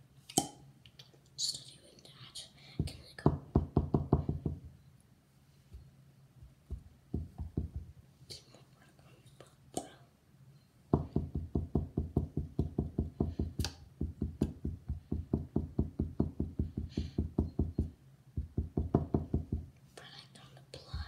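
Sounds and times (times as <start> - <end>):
rapid muffled knocking: 2.8 - 4.7, 6.4 - 8.0, 10.9 - 19.7.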